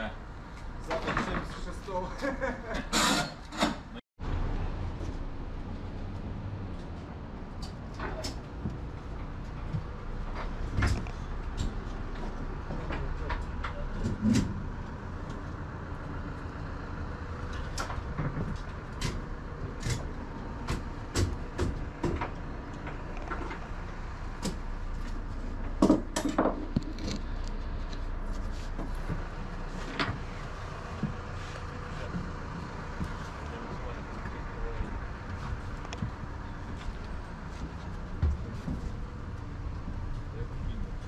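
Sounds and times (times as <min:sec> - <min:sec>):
footsteps in truck trailer: 0:04.8 - 0:16.5, 0:24.3 - 0:40.3.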